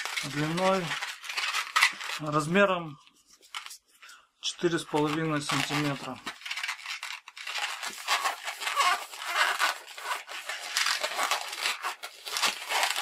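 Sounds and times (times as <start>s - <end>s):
balloon rubbing against fingers: 5.6s - 13.0s.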